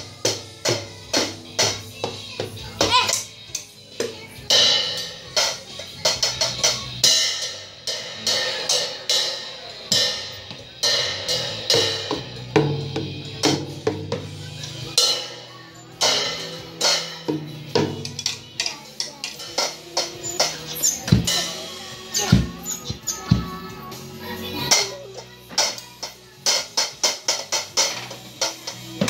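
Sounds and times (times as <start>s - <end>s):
drum hits: 16.0s - 23.6s.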